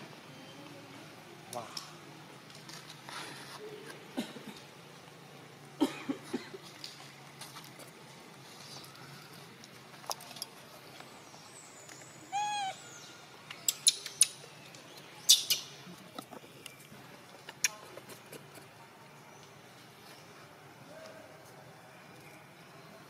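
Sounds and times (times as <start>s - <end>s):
monkey cooing: 12.3s - 12.8s.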